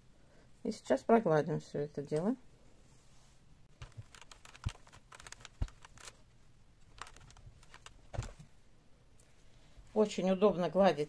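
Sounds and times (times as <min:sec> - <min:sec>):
fabric rustling: 0:02.9 - 0:08.6.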